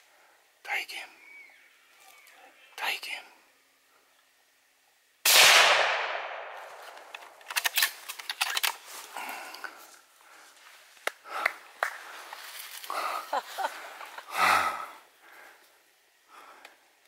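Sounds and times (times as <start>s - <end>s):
rifle shot echoing: 5.2s - 7.4s
quiet rustles: 6.6s - 14.3s.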